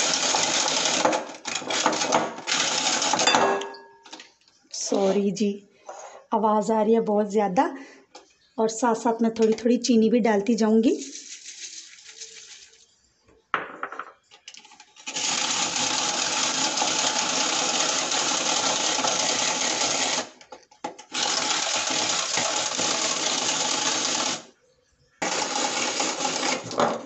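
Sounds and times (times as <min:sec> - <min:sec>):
rotary egg beater whirring: 0:00.0 - 0:03.2, 0:15.0 - 0:20.4, 0:21.0 - 0:24.5, 0:25.2 - 0:26.9.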